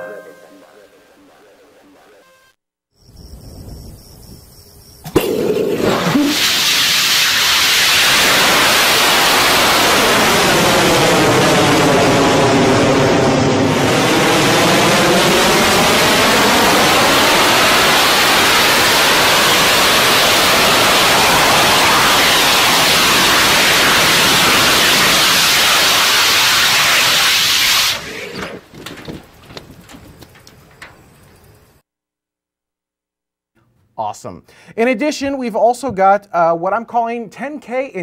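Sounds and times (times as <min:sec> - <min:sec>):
rocket engine roaring: 0:05.1 - 0:31.2.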